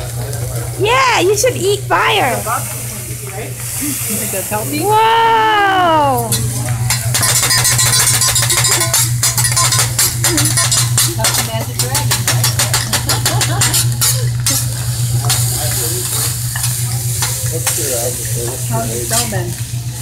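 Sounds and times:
rice sizzling on a griddle: 0:00.0 - 0:20.0
steady low hum: 0:00.0 - 0:20.0
metal spatulas clattering on hotplate: 0:06.3 - 0:19.5.

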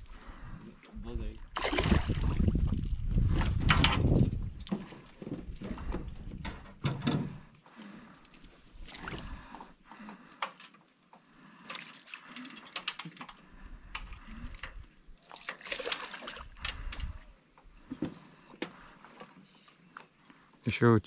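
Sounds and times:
fish thrashing and splashing: 0:01.5 - 0:03.0, 0:15.1 - 0:16.9.

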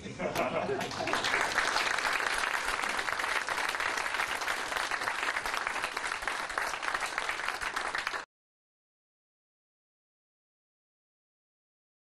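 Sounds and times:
audience applauding: 0:00.4 - 0:08.3.

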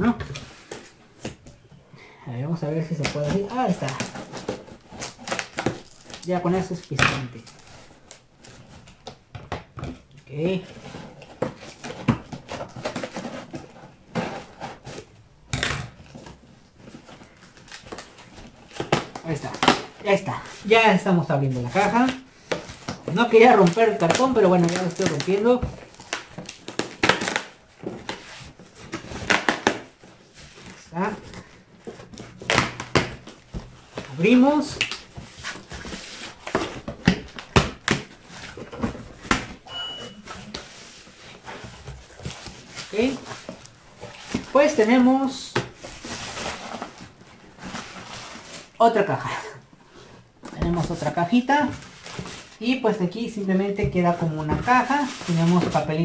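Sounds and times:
scraping and rustling of cardboard: 0:00.2 - 0:01.6, 0:02.7 - 0:09.2, 0:09.9 - 0:56.0
packing tape ripping: 0:03.3 - 0:06.3, 0:22.5 - 0:28.2, 0:28.8 - 0:30.0
thin high squeak: 0:39.6 - 0:40.3.

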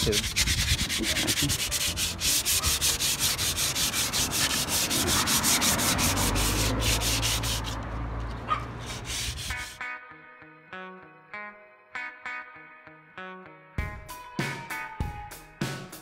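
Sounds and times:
sandpaper scratching on metal: 0:00.0 - 0:07.8, 0:08.8 - 0:09.8.

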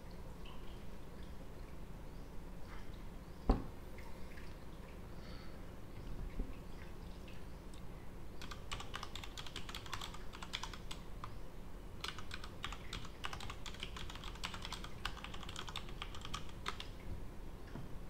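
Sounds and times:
low room hum: 0:00.0 - 0:18.0
computer keyboard typing: 0:08.4 - 0:11.4, 0:12.0 - 0:17.0.

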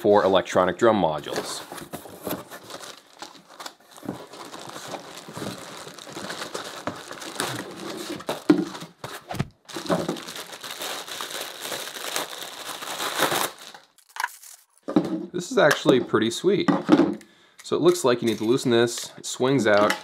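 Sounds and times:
plastic packaging crinkling: 0:01.2 - 0:14.8.

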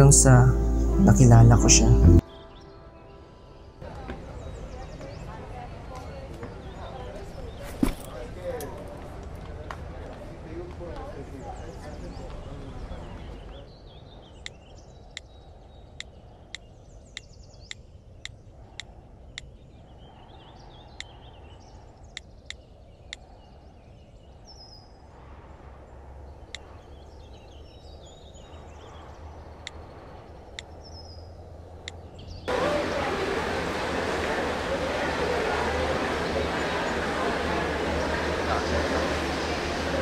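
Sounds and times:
birds chirping: 0:00.0 - 0:40.0.

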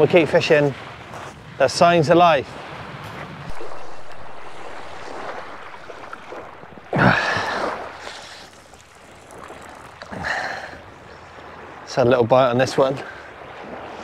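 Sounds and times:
small waves washing ashore: 0:00.0 - 0:14.0
wind noise on microphone: 0:00.8 - 0:11.7.

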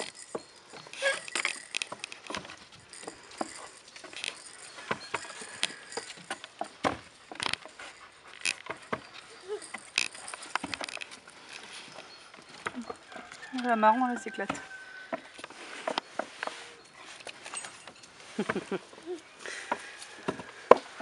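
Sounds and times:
paws clicking on wood: 0:00.0 - 0:21.0
plastic toy rattling: 0:07.3 - 0:11.6.

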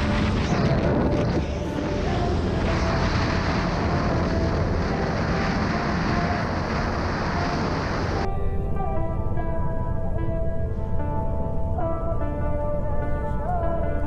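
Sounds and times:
wind buffeting microphone: 0:00.0 - 0:09.1.

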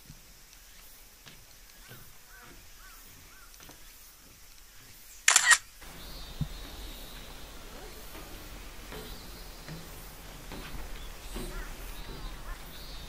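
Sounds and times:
sharp double click: 0:05.3 - 0:05.6.

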